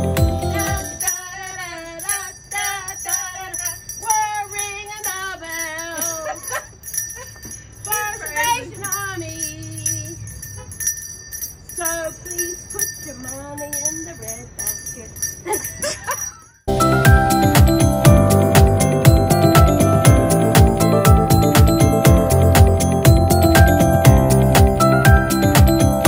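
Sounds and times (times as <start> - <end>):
person singing: 0.0 - 1.8
bells jingling: 0.0 - 26.0.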